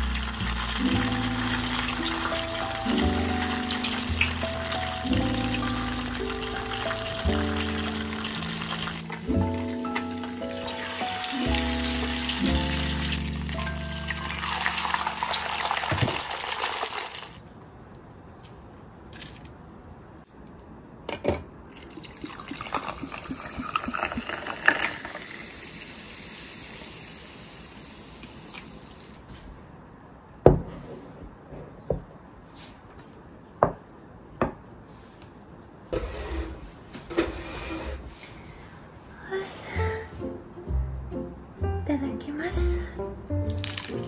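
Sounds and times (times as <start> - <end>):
frying in hot oil: 0.0 - 17.4, 21.7 - 29.2, 43.5 - 44.0
ice clinking: 0.0 - 17.4, 21.7 - 25.6, 43.5 - 44.0
drink poured into glass: 21.7 - 25.5, 43.5 - 44.0.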